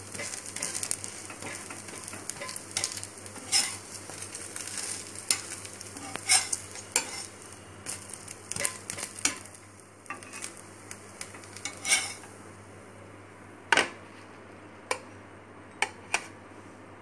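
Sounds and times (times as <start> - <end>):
faint sizzle: 0.0 - 17.0
metal spatula scraping iron pan: 0.2 - 7.3, 10.1 - 10.5, 11.3 - 12.3.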